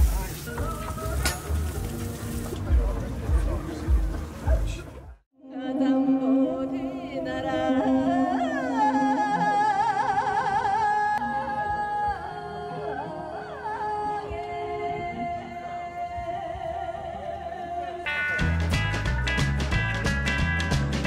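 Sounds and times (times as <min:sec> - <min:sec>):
woman singing into a microphone: 0:05.4 - 0:18.1.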